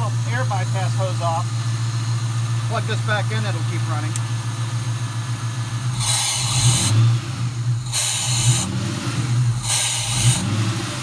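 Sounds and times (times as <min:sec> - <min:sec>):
car engine idling: 0:00.0 - 0:11.0
air hissing through hose: 0:05.9 - 0:07.0, 0:07.8 - 0:08.7, 0:09.5 - 0:10.5.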